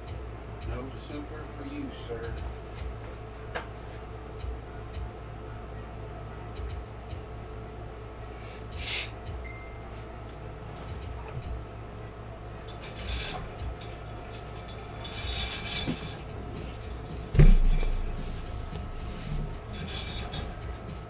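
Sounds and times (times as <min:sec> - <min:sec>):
light clinks and rustling: 0:09.4 - 0:21.0
heavy thump on table: 0:17.3 - 0:17.9.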